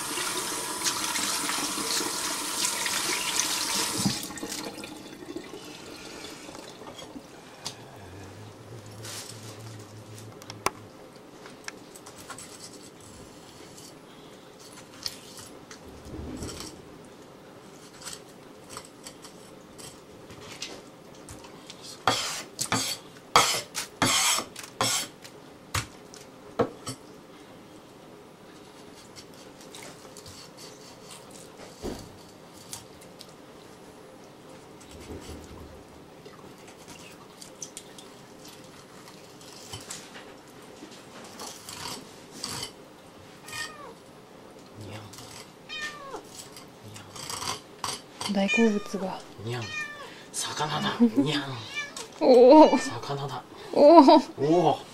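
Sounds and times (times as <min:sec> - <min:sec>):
knife scraping fish: 0:21.9 - 0:25.2, 0:30.2 - 0:31.5, 0:41.4 - 0:42.8, 0:46.3 - 0:48.0
knife scraping fish on board: 0:22.0 - 0:25.2.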